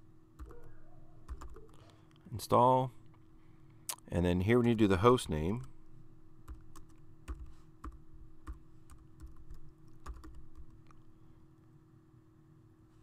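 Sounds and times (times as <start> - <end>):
faint hum: 0.0 - 13.0
keyboard keys clicking: 0.4 - 1.8, 6.5 - 11.0.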